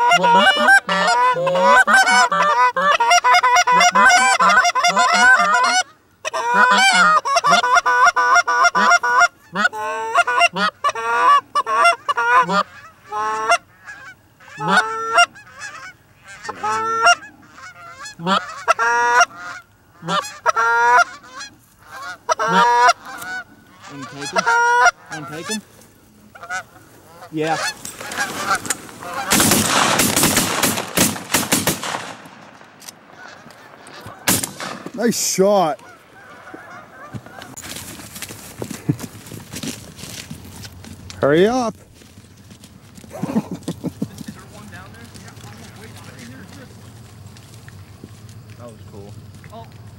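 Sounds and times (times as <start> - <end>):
geese honking: 0.0 - 49.9
loud rough rustling: 25.1 - 48.5.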